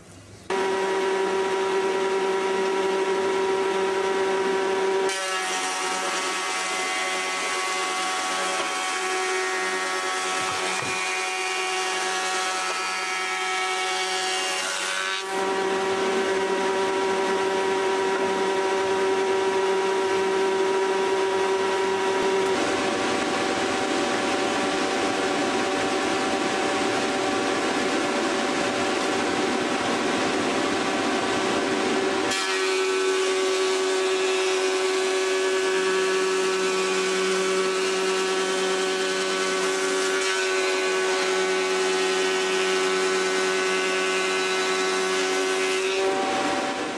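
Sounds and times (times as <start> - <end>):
thickness planer whining: 0.5 - 46.9.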